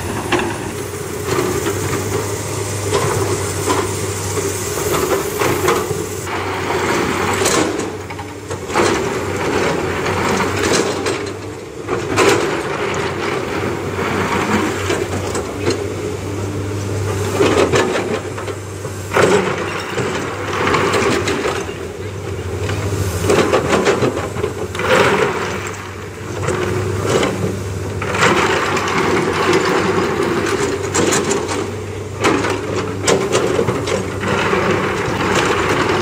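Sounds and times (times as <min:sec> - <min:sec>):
excavator diesel engine running: 0:00.0 - 0:36.0
rock clatter: 0:23.3 - 0:36.0.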